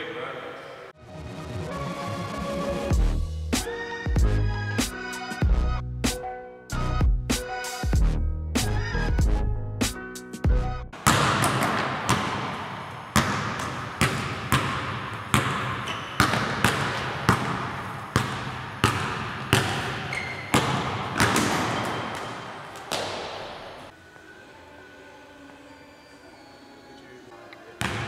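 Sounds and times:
basketball bouncing on gym floor: 11.0s - 23.9s.

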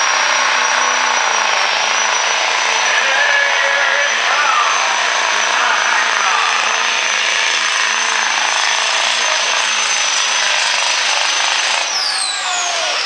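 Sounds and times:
diesel truck engine at full throttle: 0.0s - 13.0s
high turbo whistle: 11.8s - 13.0s.

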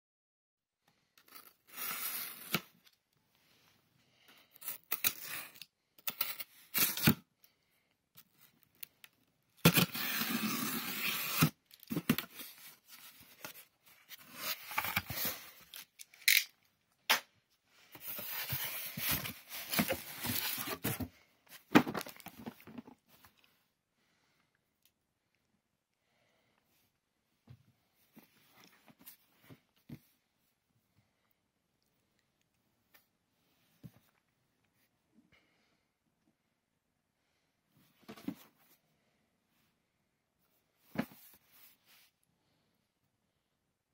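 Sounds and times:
box cutter slitting tape: 9.6s - 12.4s
cardboard scraping: 9.6s - 15.7s, 17.9s - 23.0s
tape tearing: 9.6s - 16.5s.

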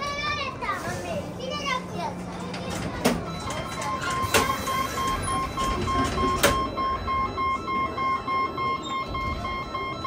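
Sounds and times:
electronic beeps: 3.3s - 10.0s.

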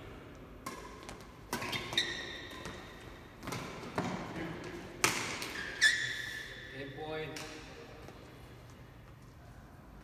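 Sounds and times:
rackets hitting a shuttlecock: 0.5s - 5.8s.

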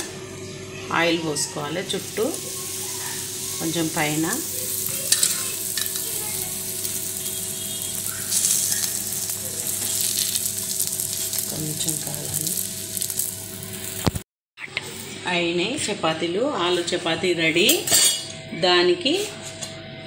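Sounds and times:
oil sizzling: 1.0s - 14.2s.

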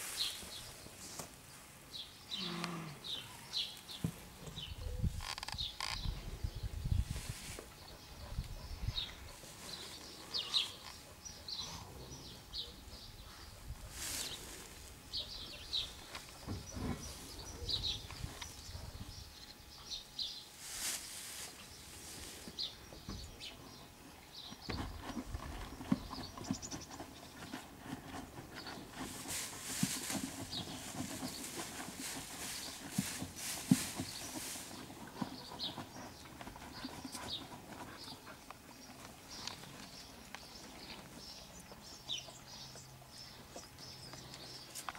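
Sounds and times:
rustling of straw bedding: 0.0s - 1.8s, 5.0s - 6.0s, 6.9s - 7.8s, 9.2s - 10.9s, 13.3s - 15.2s, 20.5s - 22.9s, 28.8s - 35.3s
small birds chirping: 1.9s - 44.9s
horses knocking while shifting: 24.4s - 39.4s.

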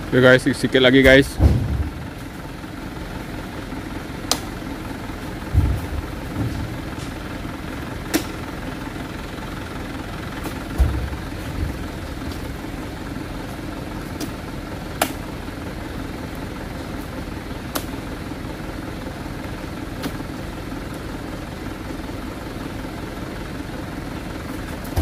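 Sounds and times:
truck engine idling: 0.0s - 25.0s
heavy thud in truck bed: 1.0s - 2.1s, 5.4s - 7.2s, 10.7s - 11.8s.

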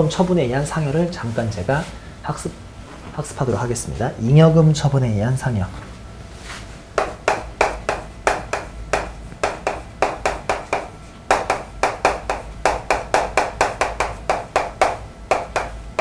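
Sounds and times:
chalk tapping on chalkboard: 7.0s - 16.0s.

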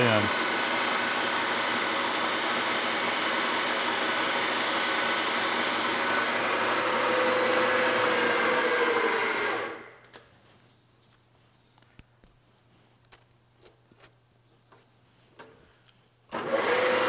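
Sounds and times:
milling machine drilling aluminium: 0.0s - 9.8s, 16.3s - 17.0s.

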